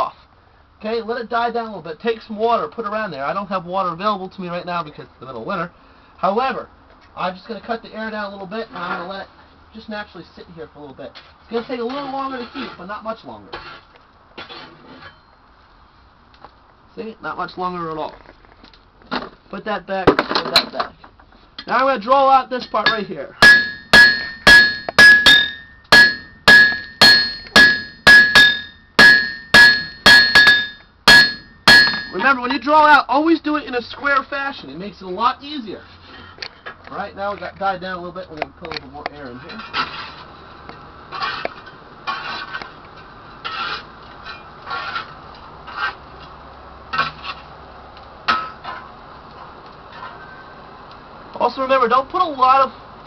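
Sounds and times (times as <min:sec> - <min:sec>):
hammer striking on anvil: 0:22.6 - 0:32.2
anvil ringing: 0:22.6 - 0:32.3.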